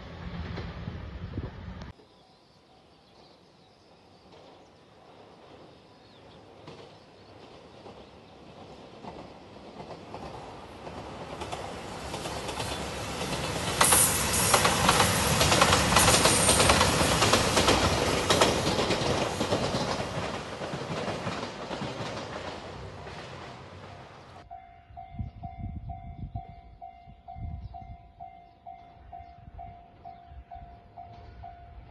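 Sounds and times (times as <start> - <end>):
diesel train passing: 0.0 - 31.9
wheels clacking over rail joints: 6.4 - 24.4.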